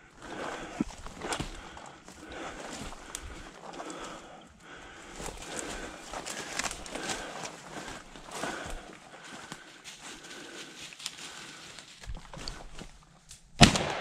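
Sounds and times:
footsteps crunching through dry leaves: 0:05.1 - 0:13.0
loud shotgun shot: 0:13.6 - 0:14.0.

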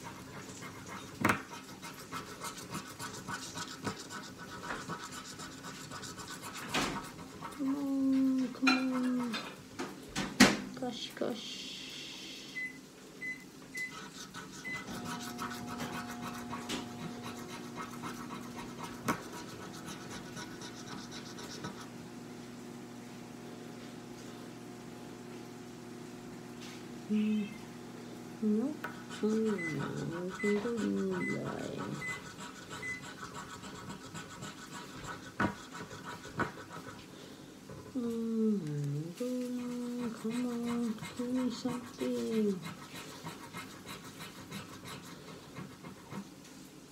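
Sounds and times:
coin scraping scratch card: 0:01.9 - 0:07.1, 0:13.8 - 0:21.9
steady low hum: 0:11.5 - 0:34.9.

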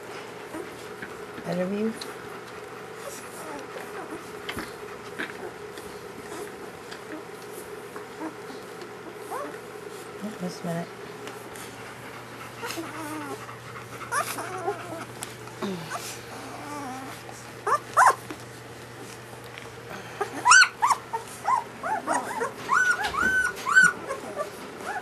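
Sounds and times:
puppies whimpering and squeaking: 0:02.7 - 0:04.3, 0:08.1 - 0:09.6, 0:12.0 - 0:15.2, 0:15.9 - 0:18.2, 0:20.2 - 0:25.0.

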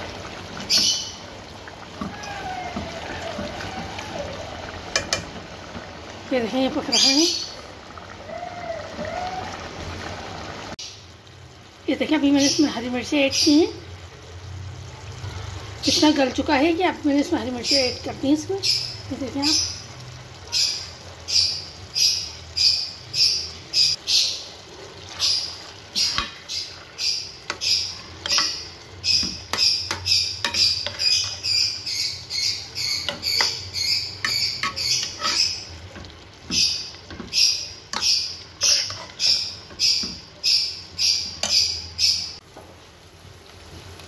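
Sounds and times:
metal spoon scraping a pot: 0:27.5 - 0:31.7, 0:33.0 - 0:40.1.

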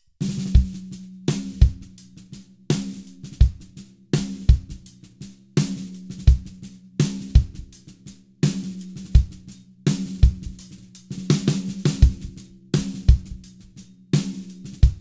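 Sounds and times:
drum kit groove: 0:00.0 - 0:15.0.

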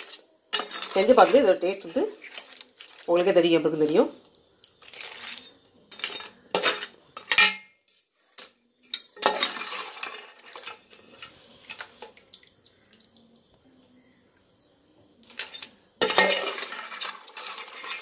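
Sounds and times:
metal spoon scraping metal pot: 0:00.0 - 0:03.3, 0:04.8 - 0:07.5, 0:08.9 - 0:12.1, 0:15.3 - 0:18.0.

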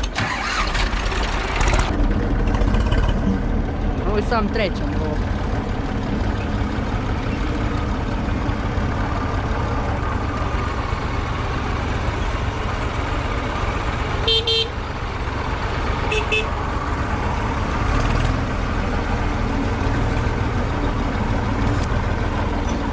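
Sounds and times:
tractor diesel engine running: 0:00.0 - 0:22.9
short horn toots: 0:16.1 - 0:16.5.

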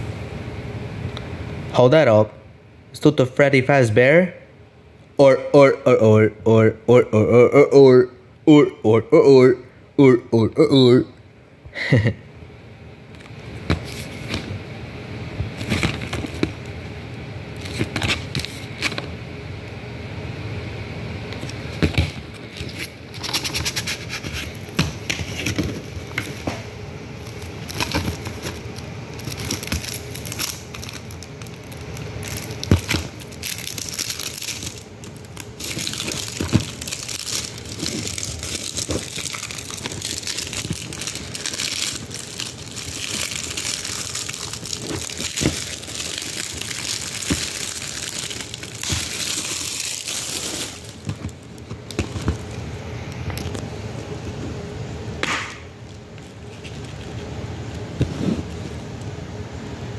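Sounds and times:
plastic case crinkling and rustling: 0:15.4 - 0:16.7, 0:17.6 - 0:19.1, 0:21.4 - 0:26.6, 0:27.2 - 0:52.6.

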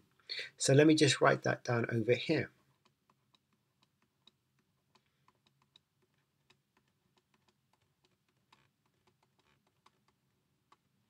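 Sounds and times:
stylus tapping on tablet: 0:02.8 - 0:10.9.

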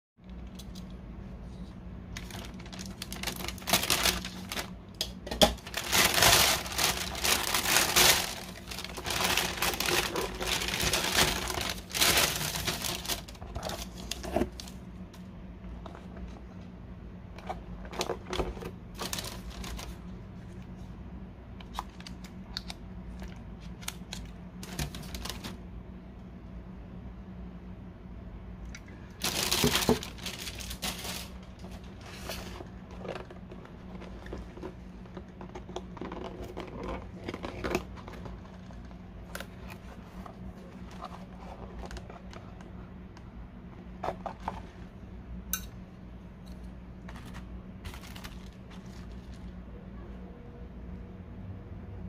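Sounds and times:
low steady hum: 0:00.2 - 0:52.0
plastic bag rustling: 0:02.1 - 0:14.8, 0:17.8 - 0:20.2, 0:23.8 - 0:25.6, 0:29.2 - 0:42.6, 0:47.0 - 0:49.6.

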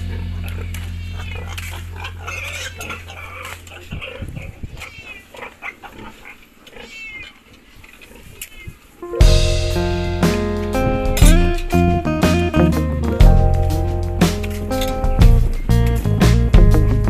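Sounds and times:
piglets squealing: 0:00.0 - 0:08.8
background music: 0:09.0 - 0:17.0.

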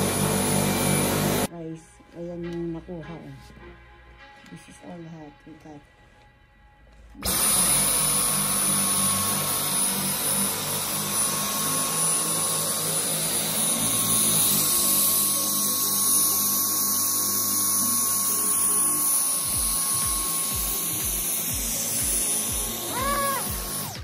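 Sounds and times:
vacuum cleaner motor whining: 0:00.0 - 0:01.5, 0:07.2 - 0:24.0.

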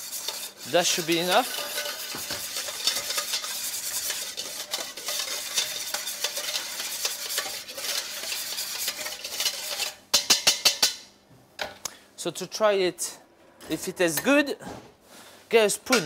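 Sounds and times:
whisk scraping metal bowl: 0:00.0 - 0:11.0.

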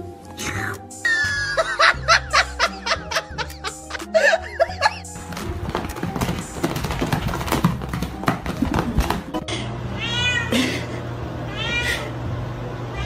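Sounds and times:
scuffling and knocks: 0:05.2 - 0:09.4
cat meowing: 0:10.0 - 0:10.5, 0:11.5 - 0:12.1.

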